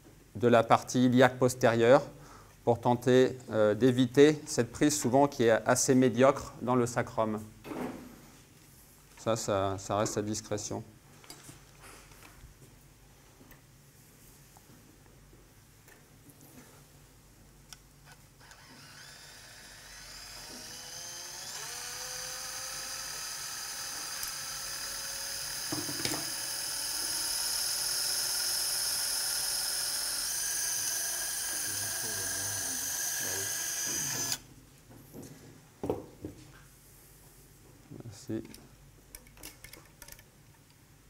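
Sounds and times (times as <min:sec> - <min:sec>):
surgical drill whining: 0:18.0 - 0:34.5.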